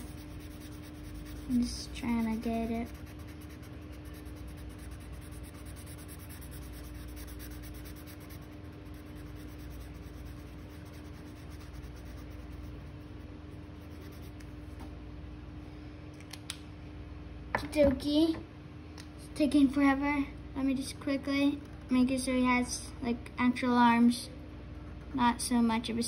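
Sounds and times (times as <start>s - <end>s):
marker scribbling on paper: 0.0s - 13.0s, 13.8s - 14.4s
faint steady hum: 0.0s - 26.0s.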